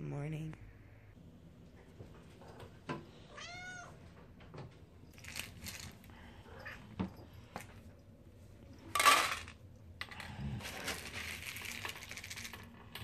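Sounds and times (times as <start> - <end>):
dry kibble rattling in plastic scoop: 5.2 - 6.0, 10.6 - 12.8.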